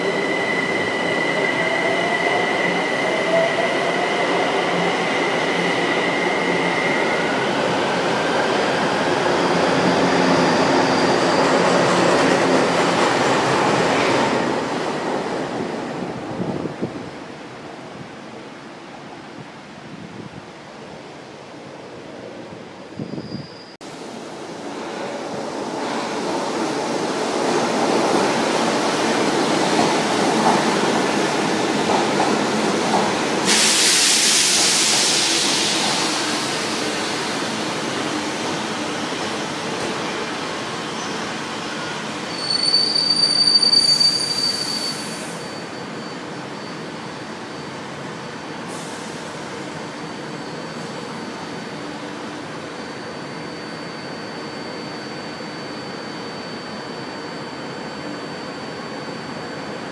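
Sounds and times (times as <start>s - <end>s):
high-pitched brake squeal: 22.8s - 23.8s, 40.9s - 47.8s, 52.7s - 59.9s
train wheels rumbling on rail: 24.6s - 46.5s
loud hiss: 33.4s - 37.4s
faint high whine: 50.0s - 59.9s.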